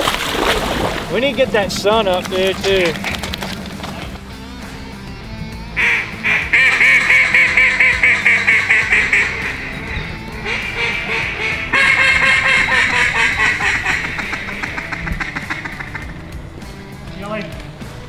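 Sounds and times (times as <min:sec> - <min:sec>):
duck call quacks: 0:05.8 - 0:16.2.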